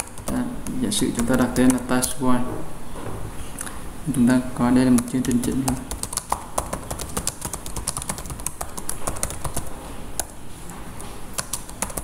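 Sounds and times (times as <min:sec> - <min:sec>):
keyboard typing clicks: 0:11.4 - 0:12.0.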